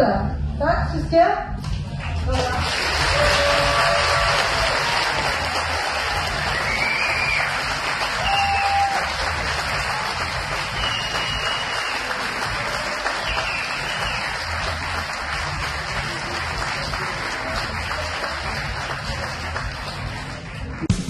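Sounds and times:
audience applauding: 0:01.9 - 0:20.9
short whistles: 0:10.8 - 0:12.0.

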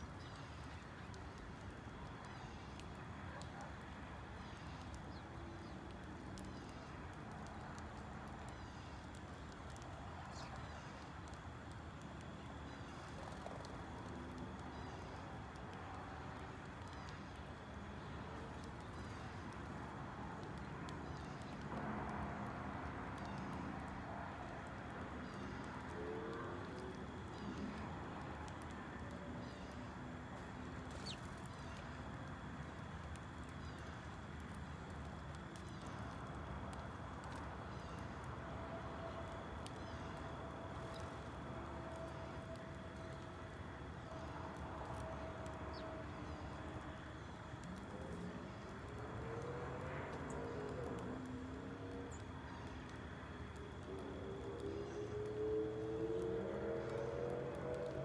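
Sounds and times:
sparrows chirping softly: 0:00.0 - 0:21.8, 0:22.4 - 0:34.9, 0:42.0 - 0:49.2
birds pecking seed on concrete: 0:00.0 - 0:58.0
outdoor background hiss and hum: 0:00.0 - 0:58.0.

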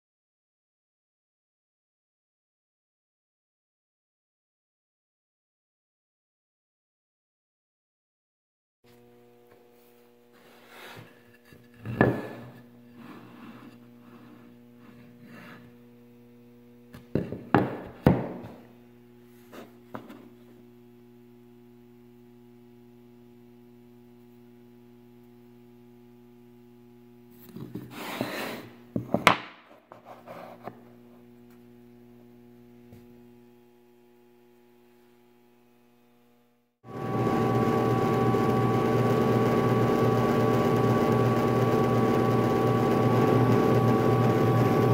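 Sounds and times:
wooden blocks knocking on table: 0:29.0 - 0:29.6.

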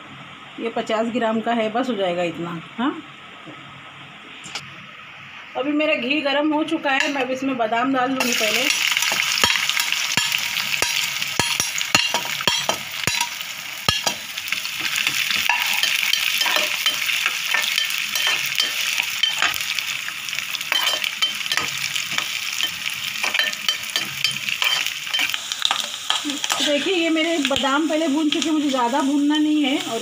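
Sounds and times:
almonds sizzling in hot fat: 0:08.2 - 0:30.0
metal spoon scraping a pot: 0:20.7 - 0:26.9.

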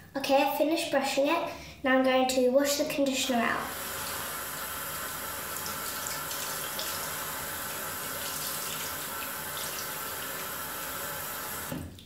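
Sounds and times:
tap running into a sink: 0:05.5 - 0:12.0.

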